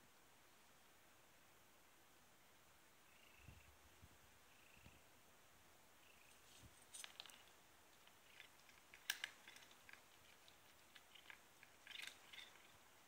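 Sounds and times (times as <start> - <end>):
cat crunching dry kibble: 6.8 - 12.9.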